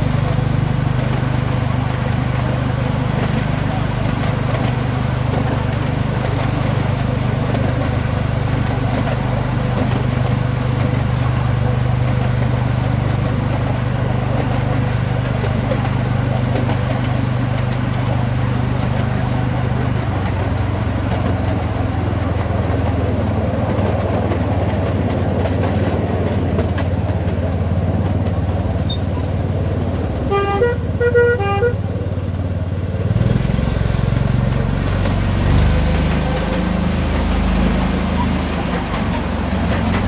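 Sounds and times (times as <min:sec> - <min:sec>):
locomotive engine running: 0:00.0 - 0:40.0
two-tone horn toots: 0:30.3 - 0:31.8.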